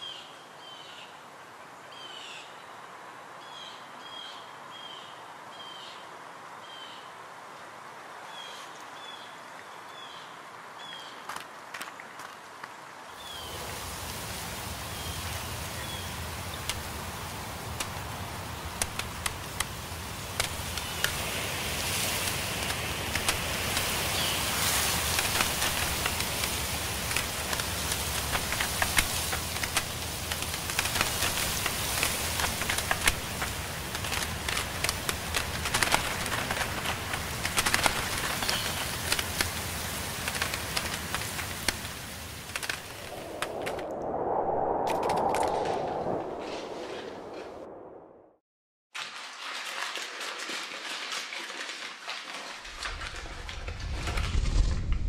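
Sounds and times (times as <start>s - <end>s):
steady hiss: 12.7s - 46.2s
sharp crackling clicks: 16.6s - 44.0s.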